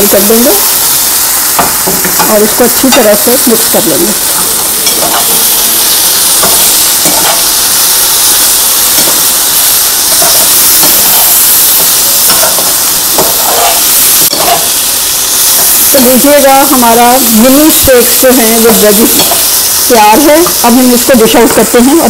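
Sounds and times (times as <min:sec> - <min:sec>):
meat sizzling in frying pan: 0:00.0 - 0:22.0
metal spatula scraping pan: 0:13.2 - 0:14.6.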